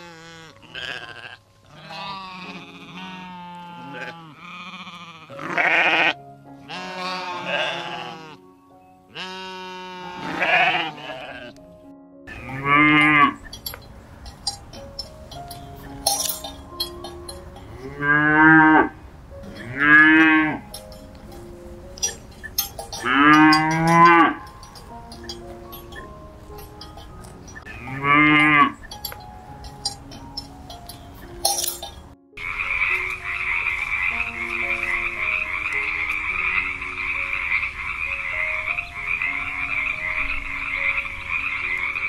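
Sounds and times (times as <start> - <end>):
cow mooing: 0.0 - 8.4, 9.2 - 11.6, 12.3 - 13.6, 17.7 - 20.9, 22.0 - 25.8, 27.7 - 28.8
frogs croaking: 12.3 - 31.4, 32.4 - 42.0
cowbell clinks: 12.4 - 18.0, 19.4 - 32.1.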